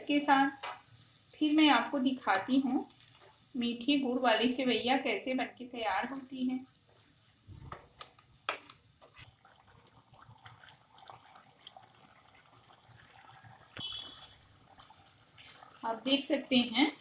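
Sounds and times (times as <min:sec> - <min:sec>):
syrup bubbling and popping: 0:02.2 - 0:03.6, 0:06.6 - 0:17.0.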